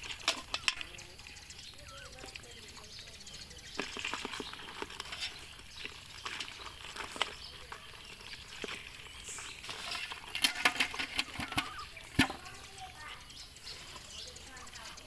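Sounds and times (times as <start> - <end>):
hands rummaging through wet weeds: 0.0 - 15.0
small clicks and knocks: 3.7 - 13.2.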